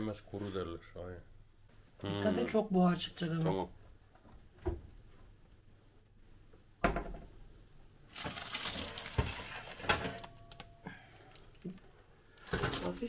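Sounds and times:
metal baking trays clanking: 8.2s - 10.7s, 12.4s - 13.0s.

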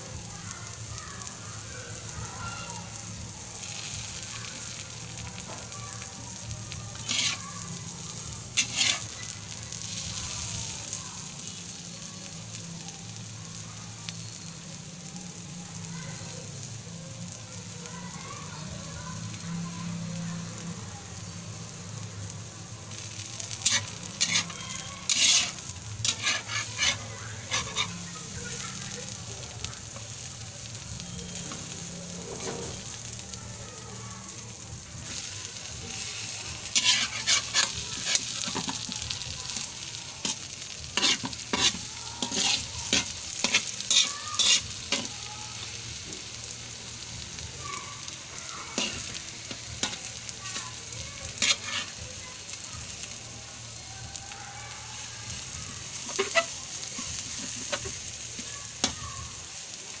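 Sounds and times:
eggs sizzling in oil: 0.0s - 60.0s
metal spatula scraping a pan: 6.9s - 7.5s, 8.1s - 9.2s, 23.6s - 28.1s, 36.0s - 45.1s, 48.8s - 50.0s, 51.3s - 52.0s, 55.9s - 59.0s.

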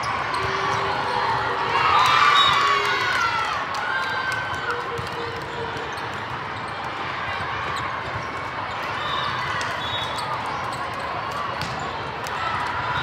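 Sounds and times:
hubbub of players and spectators: 0.0s - 13.0s
volleyballs being hit and bouncing: 4.6s - 12.9s.

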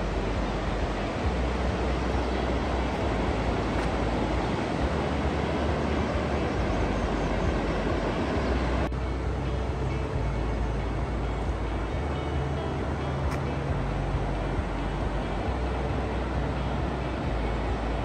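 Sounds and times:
low unsteady rumble: 0.0s - 18.0s
vehicle road noise rushing: 0.0s - 18.0s.

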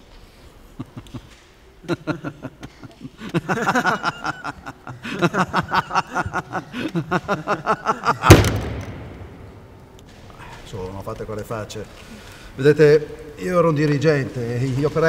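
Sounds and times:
person laughing rhythmically: 1.9s - 8.3s
slam on wooden desk echoing: 8.2s - 9.9s.

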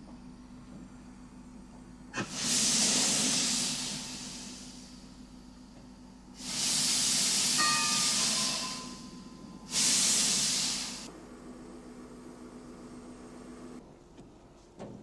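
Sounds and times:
steady low hum: 0.0s - 15.0s
steam locomotive hissing steam: 2.2s - 5.4s, 6.3s - 11.1s.

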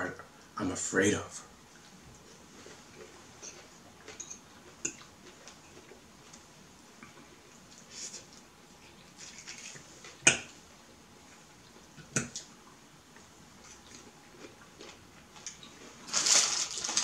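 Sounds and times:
plastic bag rustling: 15.4s - 17.0s.

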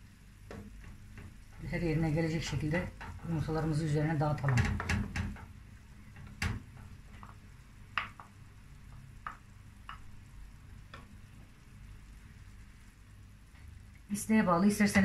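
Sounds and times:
wooden spatula tapping and scraping: 0.3s - 11.6s.

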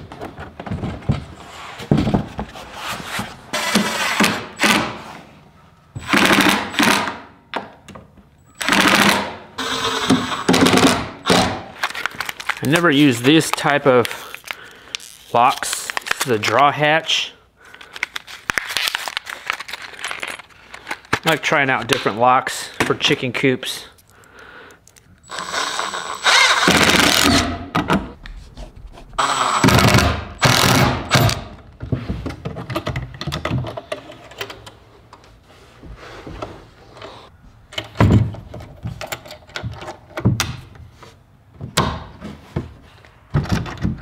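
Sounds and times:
cordless drill driving screws: 8.6s - 10.7s, 25.3s - 27.4s, 29.2s - 31.4s.

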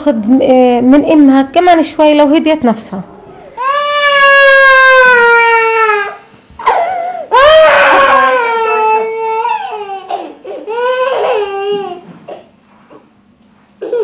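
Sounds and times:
baby crying: 3.4s - 12.5s.

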